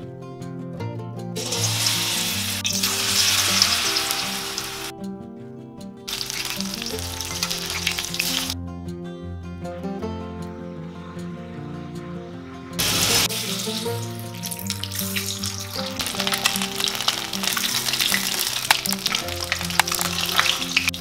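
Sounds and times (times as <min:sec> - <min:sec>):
background music: 0:00.0 - 0:21.0
eggs sizzling in hot oil: 0:01.4 - 0:04.9, 0:06.1 - 0:08.6, 0:12.8 - 0:21.0.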